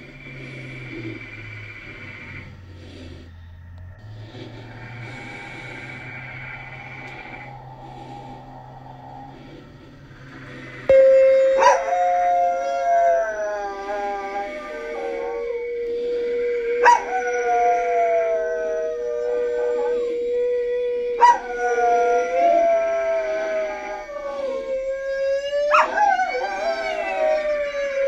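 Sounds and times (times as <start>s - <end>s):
steady held tone: 0.0s - 17.4s
dog howling: 3.6s - 28.0s.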